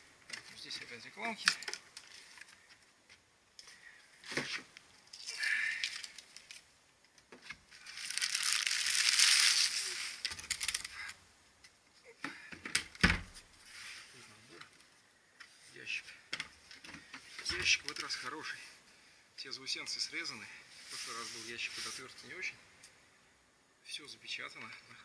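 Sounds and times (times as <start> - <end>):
plastic bag rustling and crinkling: 7.7 - 11.0.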